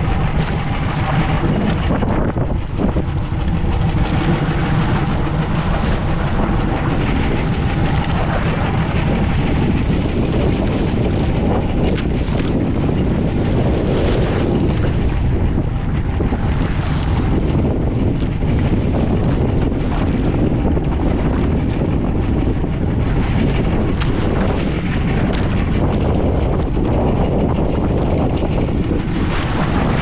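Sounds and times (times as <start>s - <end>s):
water rushing against hull: 0.0s - 30.0s
wind buffeting microphone: 0.0s - 30.0s.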